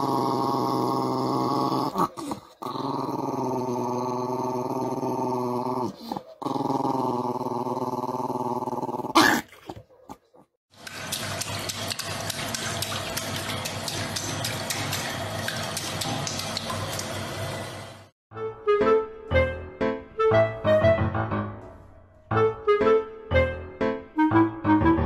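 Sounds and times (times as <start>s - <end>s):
small dog growling: 0.0s - 9.6s
toilet flushing: 10.7s - 18.1s.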